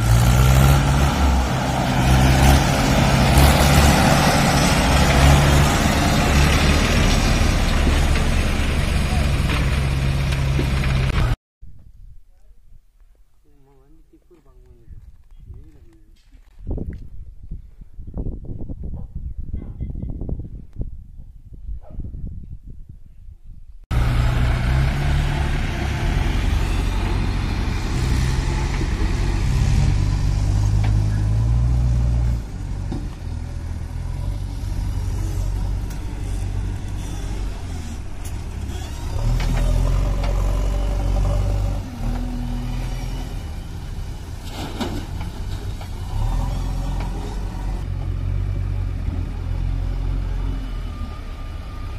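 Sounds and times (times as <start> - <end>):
diesel engines running: 0.0 - 11.4, 23.9 - 51.9.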